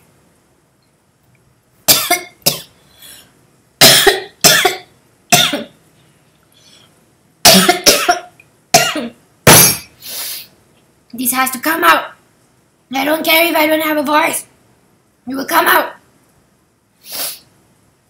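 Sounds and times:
woman coughing: 1.9 - 2.7, 3.8 - 5.8, 7.4 - 9.9.

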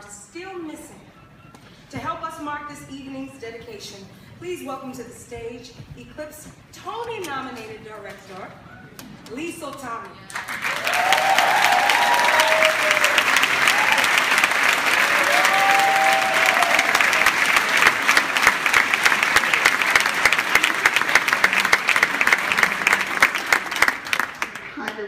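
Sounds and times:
audience applauding: 10.3 - 25.0
people cheering: 10.4 - 24.6.

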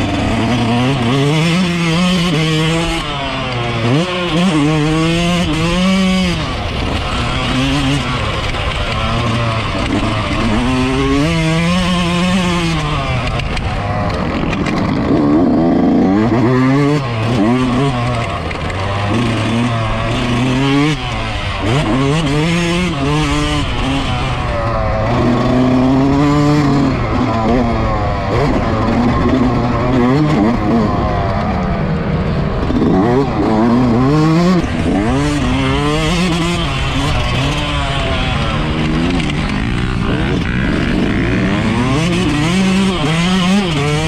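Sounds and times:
two-stroke motorcycle engine revving: 0.0 - 44.0.

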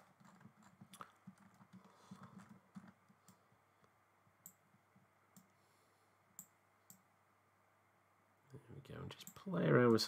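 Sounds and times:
faint computer mouse clicks: 5.3 - 5.5.

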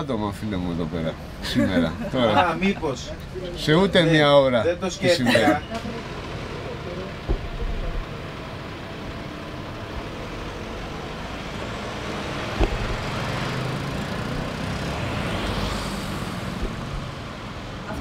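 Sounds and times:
road traffic: 0.0 - 18.0
van engine driving off: 1.8 - 18.0
sharp knock: 12.5 - 13.3.

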